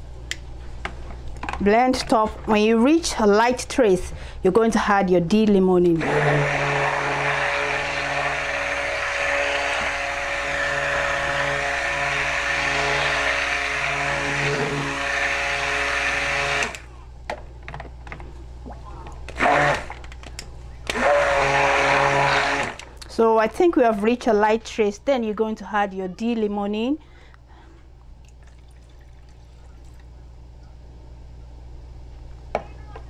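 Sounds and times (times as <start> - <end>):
stick blender motor humming: 5.9 - 16.9, 19.3 - 20.1, 20.8 - 22.9.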